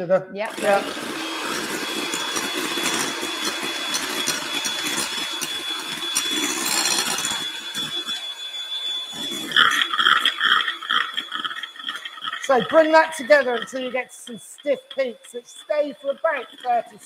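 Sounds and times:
electric hand mixer whining: 0:00.4 - 0:17.0.

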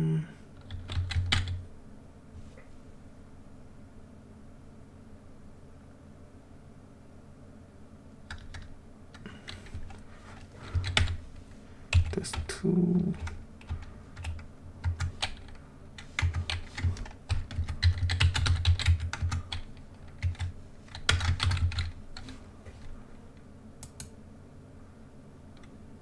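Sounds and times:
keyboard typing: 0:00.6 - 0:01.6, 0:08.3 - 0:11.2, 0:11.9 - 0:22.9.

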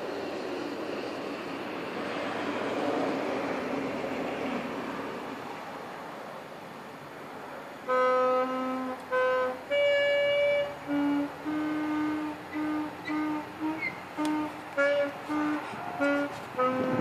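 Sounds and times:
saxophone notes: 0:07.9 - 0:17.0.

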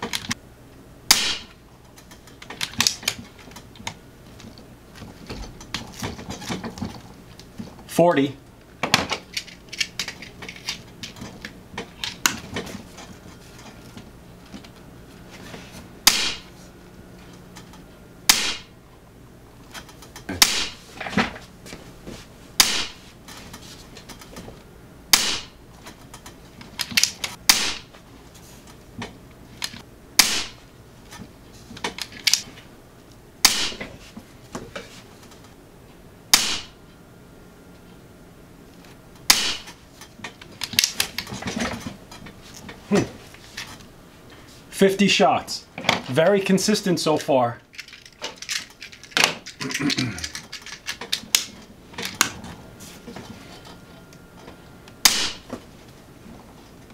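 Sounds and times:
air rifle shots: 0:01.1 - 0:01.5, 0:16.0 - 0:16.5, 0:18.3 - 0:18.7, 0:20.3 - 0:20.8, 0:22.6 - 0:23.0, 0:25.1 - 0:25.6, 0:27.4 - 0:27.9, 0:30.2 - 0:30.6, 0:33.4 - 0:33.9, 0:36.3 - 0:36.8, 0:39.3 - 0:39.7, 0:55.0 - 0:55.5.

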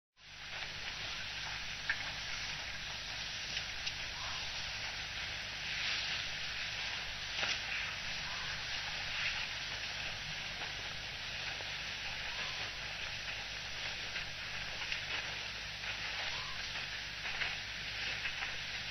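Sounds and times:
crackly hiss: 0:00.2 - 0:18.9
low even hum: 0:00.2 - 0:18.9.

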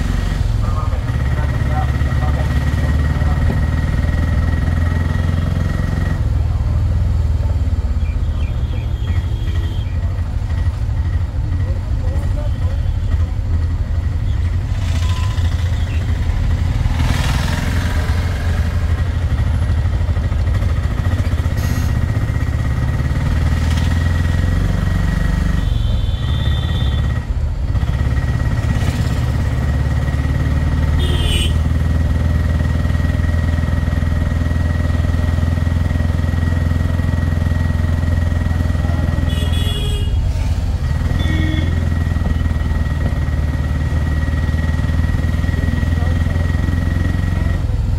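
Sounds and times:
motorcycle engine droning: 0:00.0 - 0:47.9
high-pitched beeps: 0:14.9 - 0:15.6.

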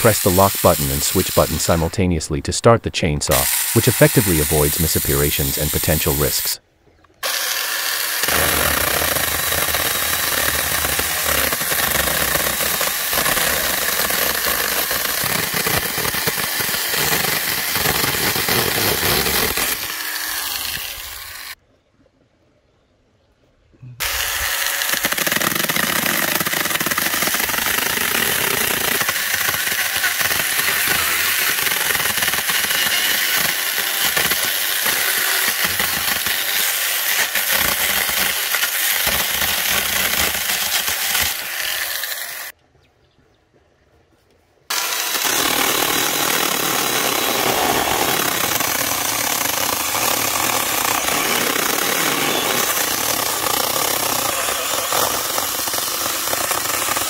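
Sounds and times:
electric chainsaw cutting wood: 0:00.0 - 0:01.9, 0:03.3 - 0:06.6, 0:07.2 - 0:21.6, 0:24.0 - 0:42.6, 0:44.7 - 0:57.0.

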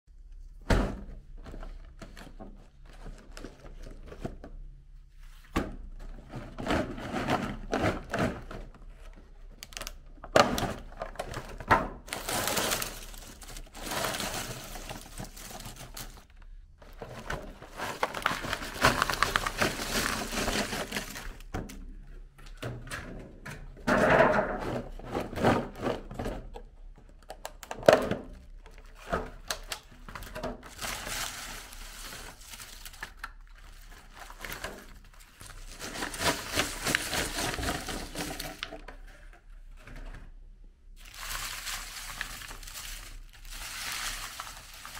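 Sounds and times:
wrapped candies rustling and clicking: 0:06.6 - 0:21.5, 0:28.6 - 0:38.9, 0:41.0 - 0:44.9.

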